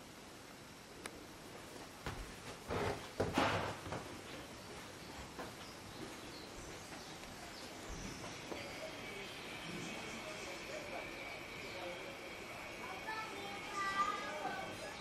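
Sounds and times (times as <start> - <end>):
steady background hiss: 0.0 - 15.0
faint bird chirps: 4.3 - 15.0.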